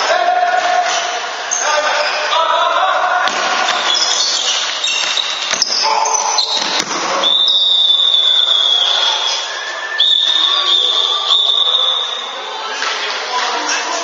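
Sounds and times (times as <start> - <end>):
referee's whistle blast: 6.3 - 12.3.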